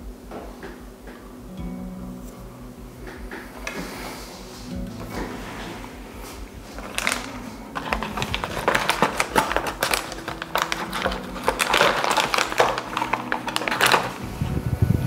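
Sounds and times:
quiet background music with beat: 0.0 - 15.0
plastic bags crinkling: 6.2 - 14.4.

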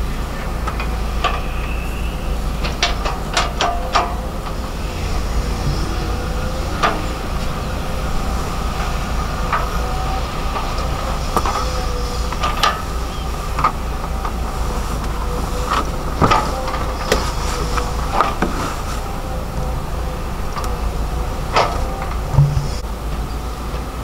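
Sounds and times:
excavator diesel engine whining: 0.0 - 24.0
bucket scraping dirt: 0.8 - 19.6
metallic clanks and knocks: 2.6 - 14.4, 21.5 - 22.8.

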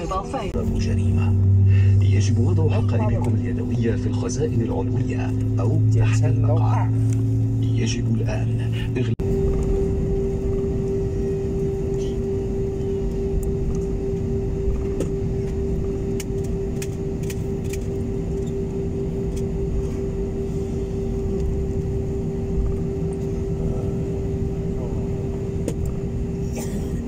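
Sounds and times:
airliner cabin engine rush: 0.0 - 27.0
constant low hum: 0.0 - 27.0.

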